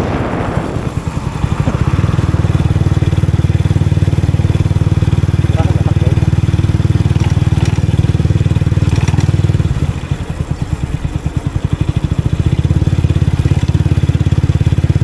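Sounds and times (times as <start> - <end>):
motorbike engine pulsing: 0.0 - 15.0.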